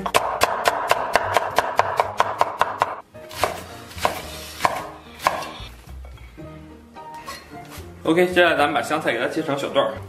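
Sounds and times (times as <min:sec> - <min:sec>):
cleaver chopping on wooden board: 0:00.0 - 0:05.6.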